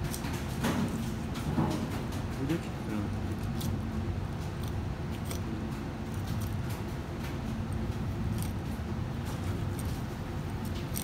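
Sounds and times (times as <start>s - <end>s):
low background hum: 0.0s - 11.0s
knife scraping on fish bone: 8.3s - 8.8s.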